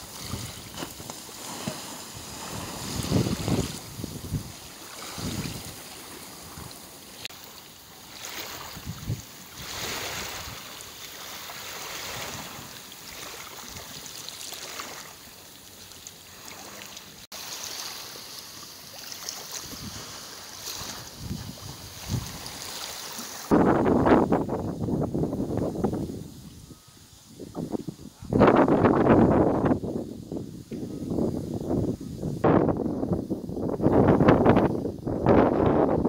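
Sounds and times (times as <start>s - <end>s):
wind buffeting microphone: 0.0s - 6.9s, 8.3s - 10.7s, 19.6s - 22.8s, 23.5s - 36.0s
waves lapping: 0.0s - 24.3s.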